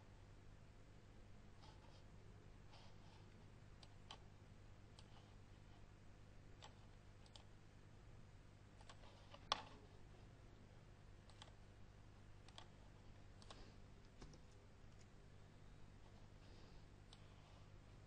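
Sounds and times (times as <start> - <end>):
faint steady hum: 0.0 - 18.0
mouse and keyboard clicks: 6.6 - 7.5, 8.8 - 9.8, 11.2 - 11.6, 12.4 - 12.8.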